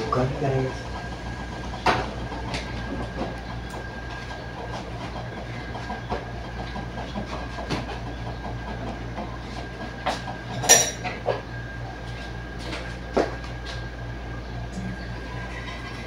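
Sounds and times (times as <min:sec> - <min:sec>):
steady hum: 0:00.0 - 0:16.0
loud ringing metal clank: 0:10.6 - 0:11.1
metal pots knocking and clinking: 0:10.6 - 0:11.1.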